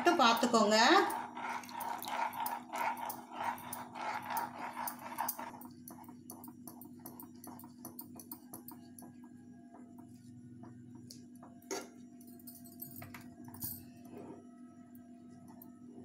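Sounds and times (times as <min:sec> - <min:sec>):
spoon scraping a pan: 0:00.0 - 0:05.6
steady low hum: 0:00.0 - 0:16.0.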